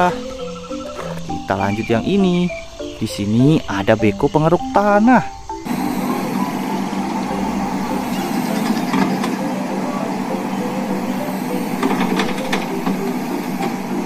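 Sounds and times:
excavator diesel engine running: 5.6 - 14.0.

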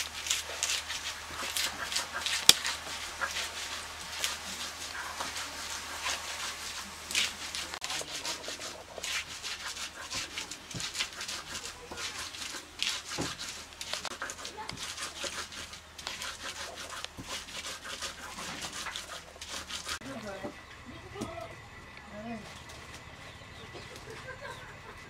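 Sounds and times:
stone grinding on stone: 7.2 - 20.0.

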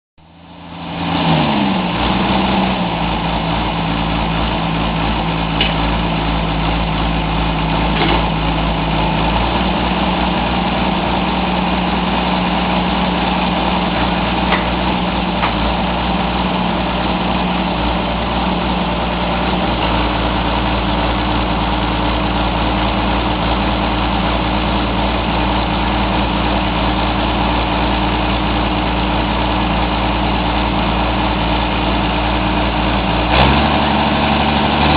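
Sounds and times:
drilling rig engine drone: 0.2 - 34.9.

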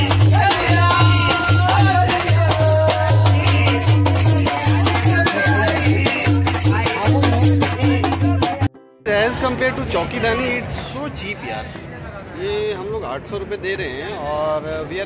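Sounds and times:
barrel drum beating: 0.0 - 8.7
person singing: 0.0 - 8.8
harmonium chords: 0.0 - 9.9.

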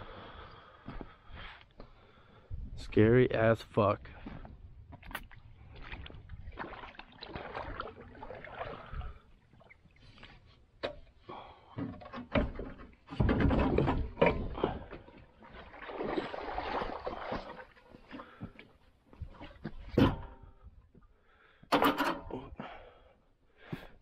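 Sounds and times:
water sloshing around boat: 4.2 - 20.7
knocks and scraping on hull: 11.7 - 18.5.

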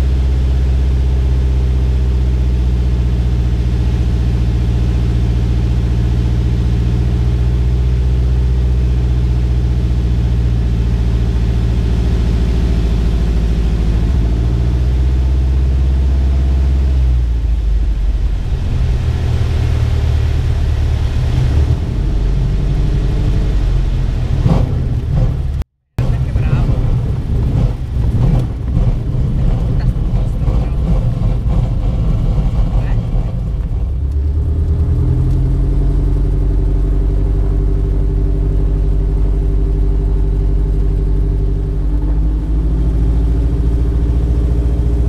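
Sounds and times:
aircraft engine and propeller: 0.0 - 45.0.

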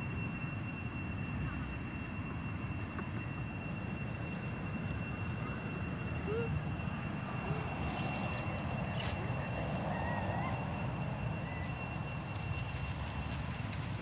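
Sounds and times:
high-pitched whine: 0.0 - 14.0
steady low rumble: 5.0 - 14.0
macaques squeaking: 6.2 - 13.9.

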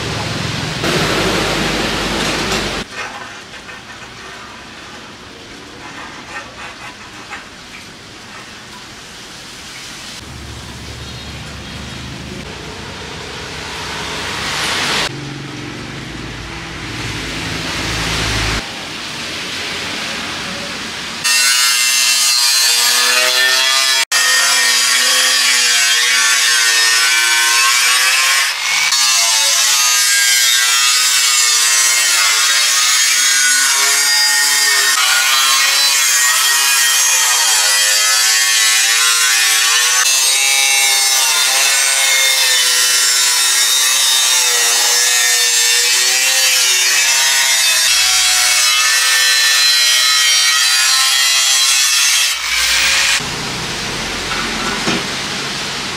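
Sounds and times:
angle grinder cutting sheet metal: 0.8 - 4.2, 21.2 - 53.3.

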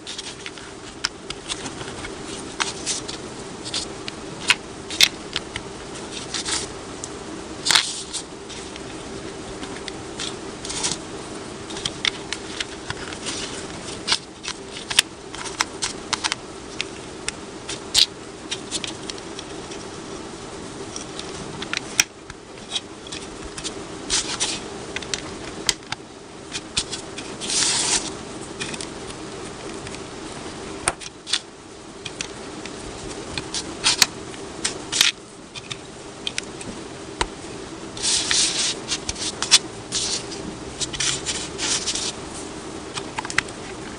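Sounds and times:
pieces rustling: 0.0 - 6.7, 7.6 - 11.1, 11.7 - 17.1, 20.8 - 31.4, 38.0 - 43.9
steady low hum: 0.0 - 43.9.

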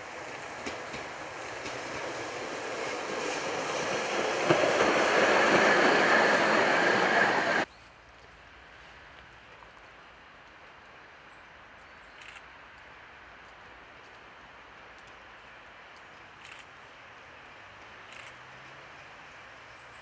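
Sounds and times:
high whine of tram: 0.0 - 7.7
tram wheels rolling on rails: 0.0 - 7.7.

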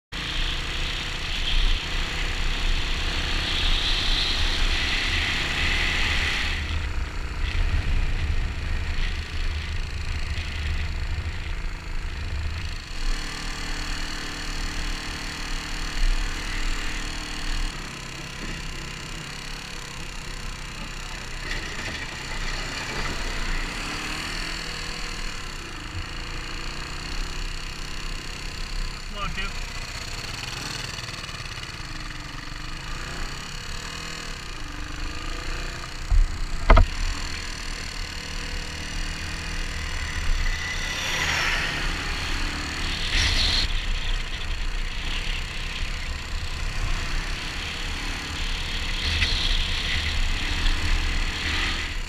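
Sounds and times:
motorcycle engine running: 0.0 - 52.0.

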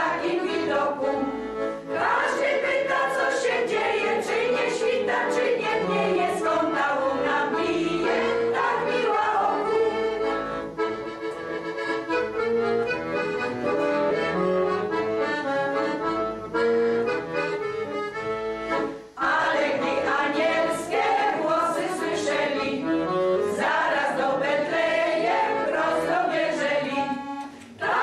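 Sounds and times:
women's choir singing: 0.0 - 10.6, 19.2 - 28.0
accordion playing: 0.0 - 28.0.

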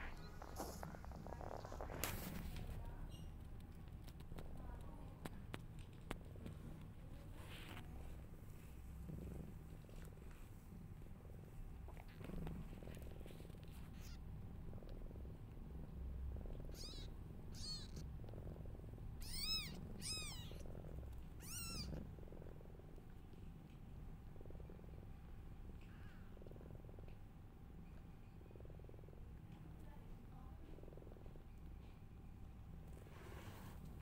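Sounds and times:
cat purring: 0.0 - 34.0
kittens mewing: 13.9 - 14.2, 16.7 - 18.1, 19.2 - 20.6, 21.4 - 21.9.

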